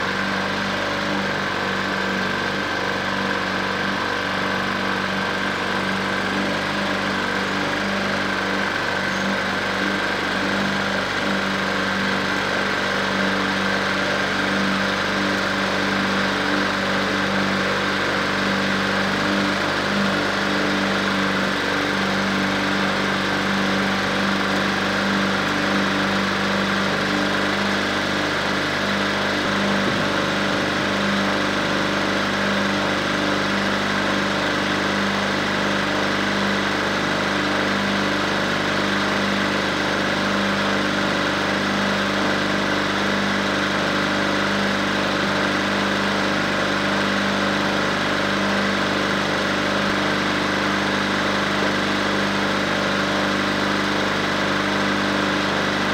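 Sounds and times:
dozer engine idling: 20.8s - 32.5s.

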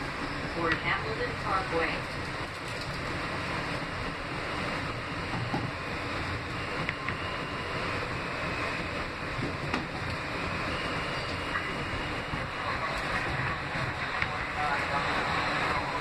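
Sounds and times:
subway train rumbling on rails: 0.0s - 16.0s.

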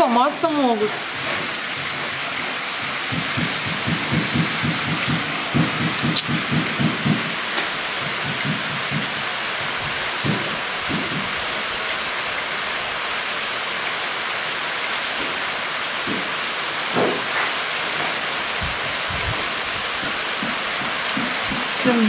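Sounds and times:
heavy rain pouring: 0.0s - 22.0s
soft low thumps: 3.1s - 7.3s.

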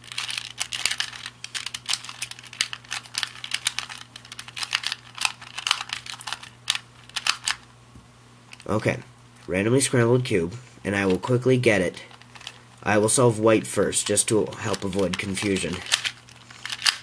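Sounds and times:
puzzle cube plastic clicking: 0.1s - 7.6s, 14.1s - 17.0s.

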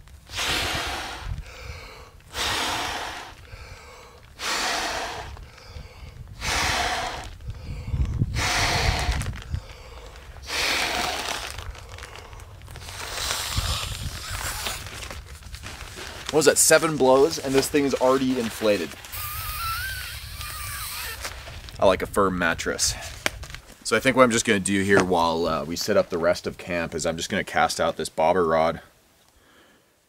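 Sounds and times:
breaths drawn in: 0.2s - 21.8s
person blowing into valve: 0.3s - 1.4s, 2.3s - 3.4s, 4.4s - 5.4s, 6.4s - 7.4s, 8.3s - 9.3s, 10.4s - 11.4s, 13.1s - 15.0s, 19.1s - 21.4s.

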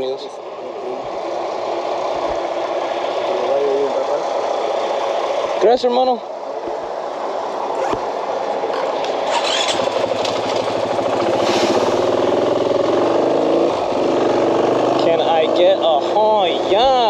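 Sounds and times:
motorcycle engine pulling away: 8.7s - 16.1s.

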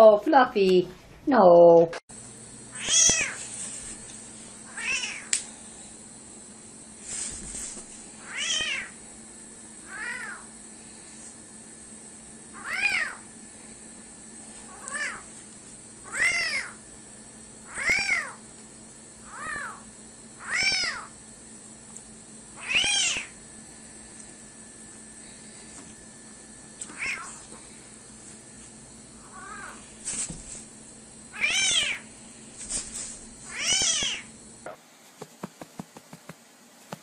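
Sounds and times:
kitten mewing: 2.7s - 3.4s, 4.7s - 5.3s, 8.2s - 9.0s, 9.8s - 10.5s, 12.5s - 13.2s, 14.7s - 15.3s, 16.0s - 16.8s, 17.7s - 18.4s, 19.2s - 19.8s, 20.4s - 21.1s, 22.6s - 23.4s, 26.8s - 27.5s, 29.2s - 29.8s, 31.3s - 32.1s, 33.5s - 34.3s.

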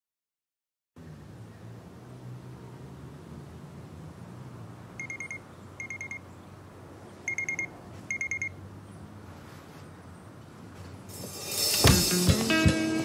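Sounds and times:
smartwatch alarm high beeps: 5.0s - 6.2s, 7.3s - 8.6s.

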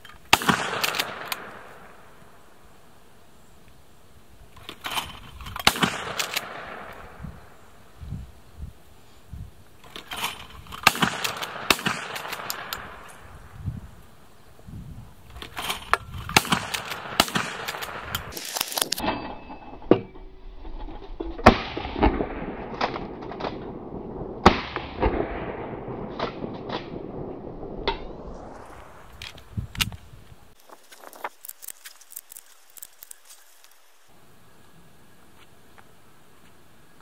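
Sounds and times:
shotgun shots echoing: 0.3s - 2.2s, 5.6s - 7.6s, 10.8s - 13.4s, 16.3s - 18.4s, 21.4s - 29.1s.

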